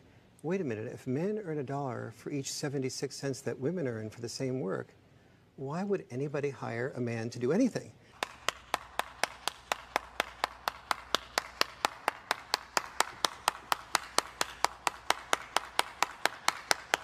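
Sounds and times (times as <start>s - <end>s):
person clapping hands: 8.1s - 17.0s.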